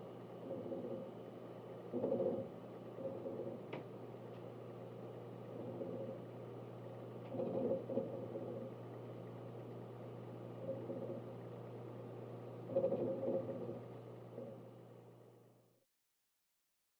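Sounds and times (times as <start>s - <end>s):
hard drive seek chatter: 0.0s - 15.2s
low hum of device: 0.0s - 15.8s.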